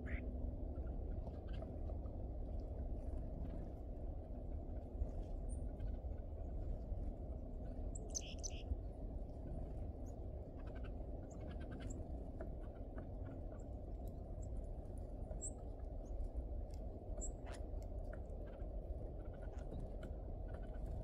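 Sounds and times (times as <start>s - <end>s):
low background hum: 0.0s - 21.0s
birds chirping: 7.9s - 8.7s.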